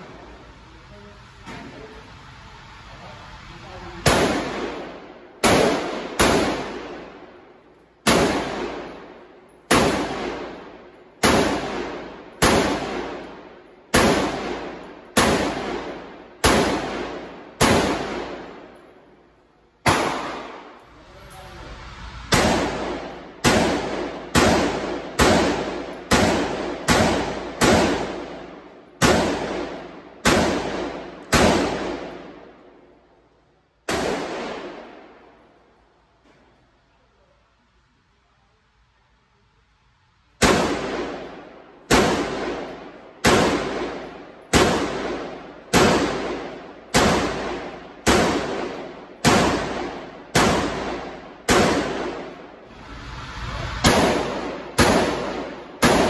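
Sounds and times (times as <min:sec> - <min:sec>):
pistol gunshots: 0:04.0 - 0:07.4, 0:08.0 - 0:18.8, 0:19.8 - 0:20.8, 0:22.3 - 0:32.5, 0:33.9 - 0:35.0, 0:40.4 - 0:52.6, 0:53.8 - 0:56.0
gunshot echo off walls: 0:04.0 - 0:18.9, 0:19.8 - 0:20.8, 0:22.3 - 0:32.6, 0:33.8 - 0:35.2, 0:40.4 - 0:52.6, 0:53.8 - 0:56.0.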